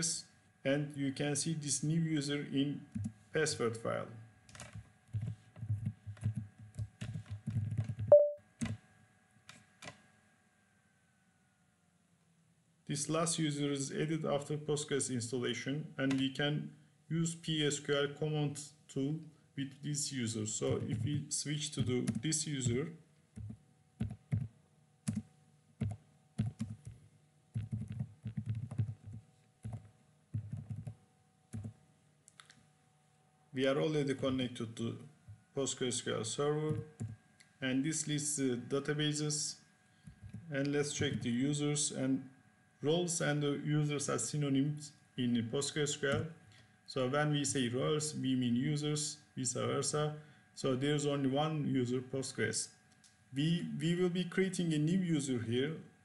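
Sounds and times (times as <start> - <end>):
typing on computer keyboard: 4.5 - 8.8, 23.4 - 24.5, 25.1 - 27.0, 27.6 - 31.8, 36.7 - 37.2
computer alert beep: 8.1 - 8.4.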